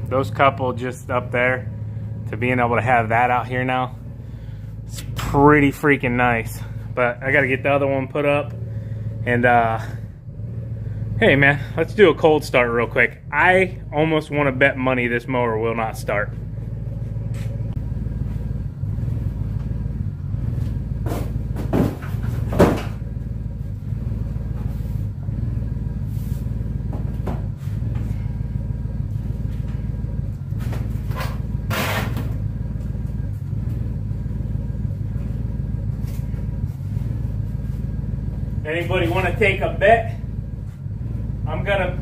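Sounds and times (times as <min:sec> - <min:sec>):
steady low rumble: 0:00.0 - 0:42.0
cardboard boxes thumping on concrete: 0:21.1 - 0:23.0.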